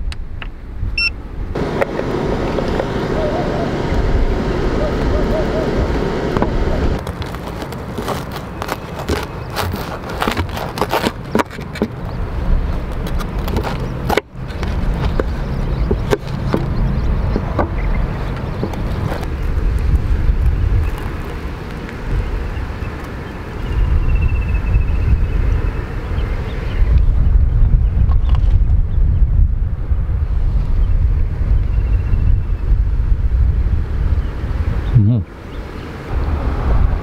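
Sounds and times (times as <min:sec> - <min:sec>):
steady low rumble: 0:00.0 - 0:08.8, 0:11.2 - 0:37.0
knife sawing through crunchy crust: 0:07.0 - 0:11.8.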